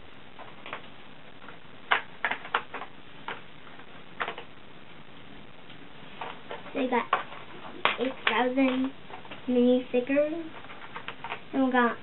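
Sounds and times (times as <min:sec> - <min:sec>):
crayons tapping on plastic tray: 0:01.9 - 0:03.4, 0:04.2 - 0:04.5, 0:06.5 - 0:09.4.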